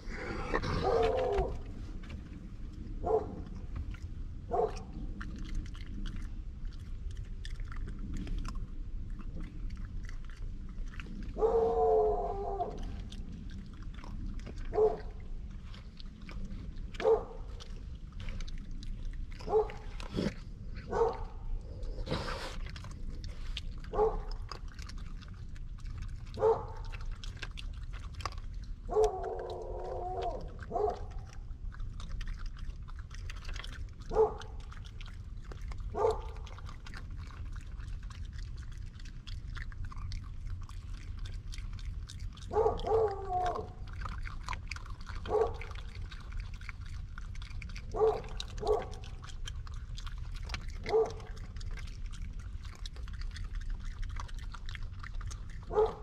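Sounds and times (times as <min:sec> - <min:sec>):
raccoons crunching peanuts: 0:00.0 - 0:56.0
dog drawn-out wavering calls: 0:00.6 - 0:01.6, 0:11.4 - 0:13.1, 0:28.9 - 0:31.4, 0:42.4 - 0:46.2
dog barking: 0:00.7 - 0:01.6, 0:03.0 - 0:03.4, 0:04.5 - 0:04.9, 0:11.4 - 0:12.8, 0:14.7 - 0:15.1, 0:17.0 - 0:17.4, 0:19.4 - 0:19.9, 0:20.9 - 0:21.4, 0:23.9 - 0:24.4, 0:26.4 - 0:26.9, 0:28.9 - 0:29.5, 0:30.2 - 0:31.2, 0:34.1 - 0:34.5, 0:35.9 - 0:36.5, 0:42.5 - 0:43.7, 0:45.2 - 0:45.8, 0:47.9 - 0:49.2, 0:50.8 - 0:51.4, 0:55.7 - 0:56.0.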